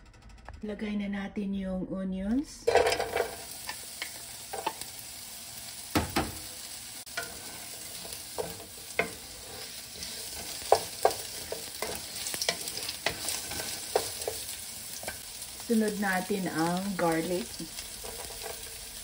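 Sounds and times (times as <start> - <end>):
spatula tapping and scraping pan: 2.7 - 4.8, 7.1 - 15.2, 18.0 - 18.8
onions sizzling in oil: 2.7 - 19.0.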